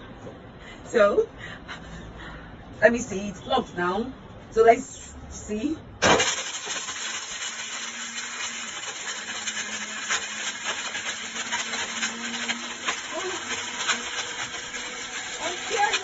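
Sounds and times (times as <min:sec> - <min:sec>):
blender whirring: 0:06.0 - 0:16.0.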